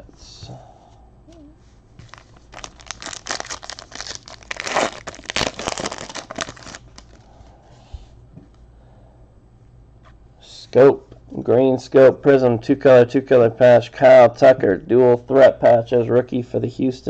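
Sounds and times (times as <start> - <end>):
plastic wrapper tearing and crinkling: 2.0 - 7.2.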